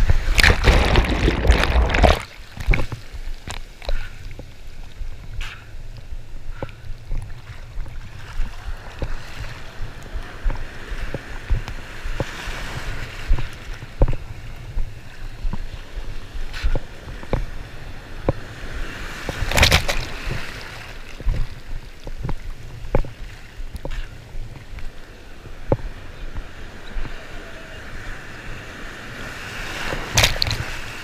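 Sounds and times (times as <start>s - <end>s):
foamy water swirling: 0.0s - 4.4s
water splashing against camera: 0.0s - 18.5s, 19.2s - 25.0s, 29.9s - 31.0s.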